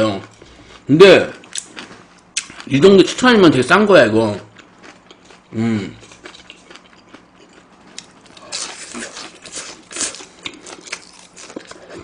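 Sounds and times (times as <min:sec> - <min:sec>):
person chewing food: 0:00.2 - 0:02.7, 0:04.4 - 0:12.0.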